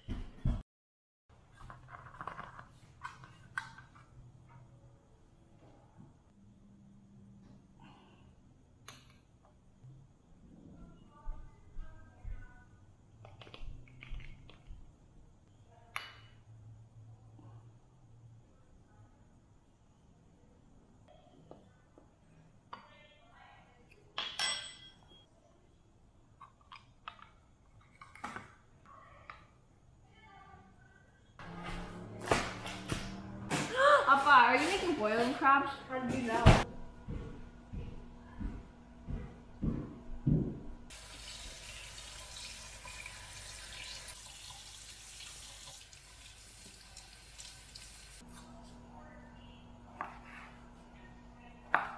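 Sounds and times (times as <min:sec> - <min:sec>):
faucet water splashing in sink: 0:40.9 - 0:48.2.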